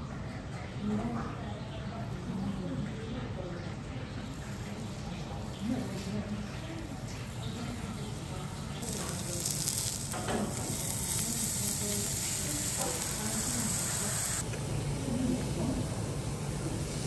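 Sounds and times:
beef sizzling on grill plate: 8.8s - 14.4s.

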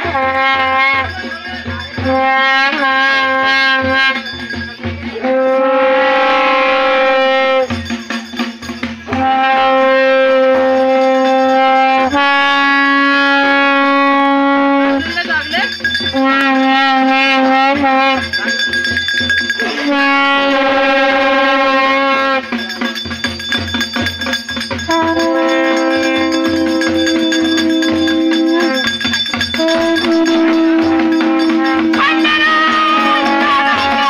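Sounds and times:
brass horn long held notes: 0.0s - 4.5s, 5.1s - 7.8s, 9.1s - 15.2s, 16.1s - 18.8s, 19.6s - 22.7s, 24.8s - 34.0s
steady drumbeat: 0.0s - 34.0s
higher wavering note: 19.6s - 22.8s, 24.9s - 34.0s.

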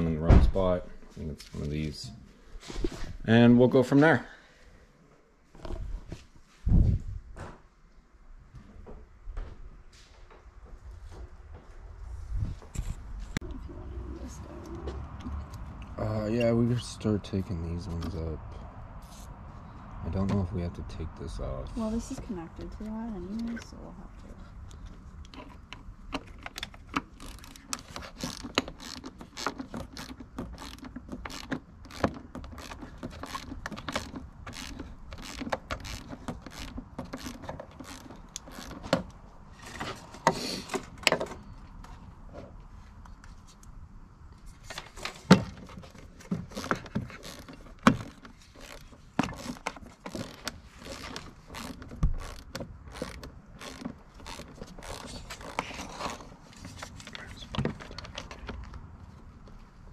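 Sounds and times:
ratchet: 27.2s - 38.8s, 46.5s - 56.3s.

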